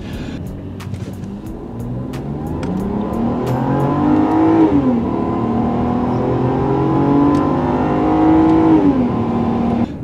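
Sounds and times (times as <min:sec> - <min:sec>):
car engine accelerating hard: 0:00.3 - 0:10.0.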